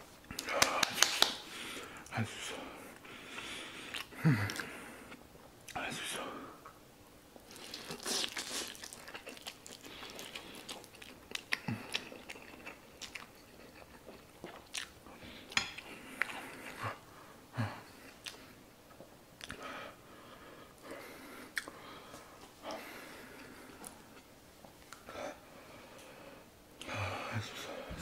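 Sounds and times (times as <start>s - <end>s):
chewing with wet mouth clicks: 7.5s - 16.8s, 18.0s - 19.6s, 21.5s - 21.8s.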